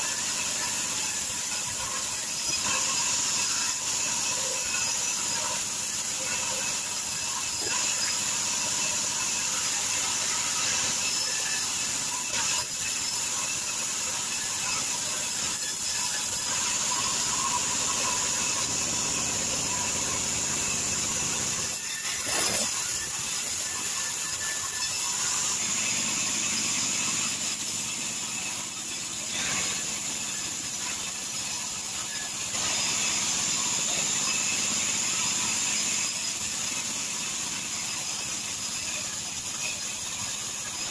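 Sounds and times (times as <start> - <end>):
band saw blade cutting wood: 0.0 - 31.6.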